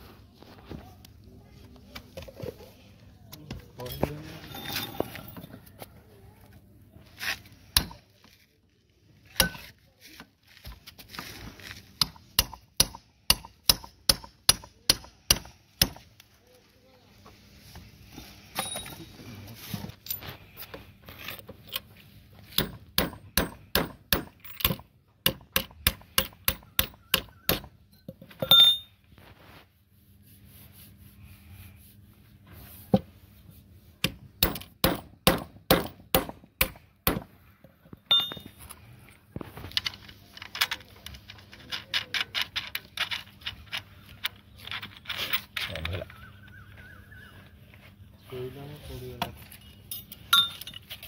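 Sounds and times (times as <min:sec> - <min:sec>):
hammer striking metal: 0:12.0 - 0:16.0, 0:22.6 - 0:27.7
ringing metal strike: 0:38.1 - 0:38.5.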